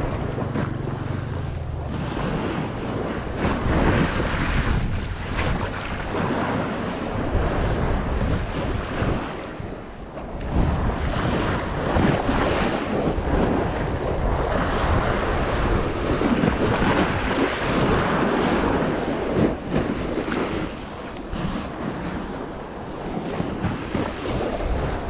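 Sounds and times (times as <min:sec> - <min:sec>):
sea waves washing in: 0:00.0 - 0:25.0
wind buffeting microphone: 0:00.0 - 0:25.0.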